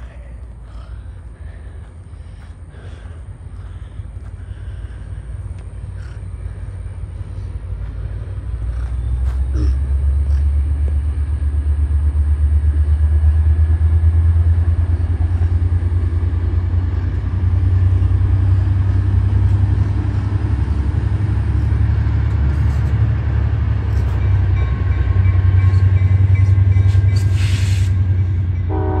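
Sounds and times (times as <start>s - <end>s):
train rumbling over bridge: 0.0s - 29.0s
brief hiss: 27.2s - 28.0s.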